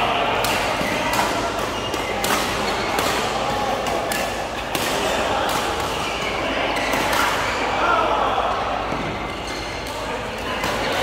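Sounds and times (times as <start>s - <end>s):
players chattering: 0.0s - 11.0s
rackets striking shuttlecocks: 0.3s - 7.5s.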